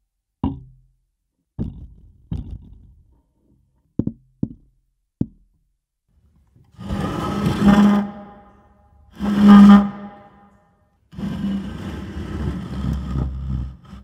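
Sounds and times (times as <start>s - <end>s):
stool scraping on wooden floor: 6.8s - 8.5s, 9.2s - 10.3s, 11.1s - 14.0s.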